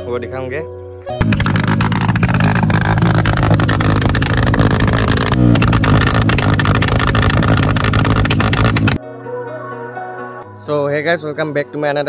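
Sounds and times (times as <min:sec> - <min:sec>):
exhaust backfire pops: 0:01.2 - 0:09.0
motorcycle engine revving: 0:01.2 - 0:09.0.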